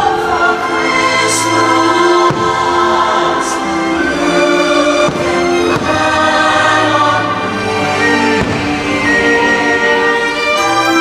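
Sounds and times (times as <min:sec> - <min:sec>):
choir singing with orchestra: 0:00.0 - 0:11.0
faint firework bangs: 0:08.4 - 0:08.8.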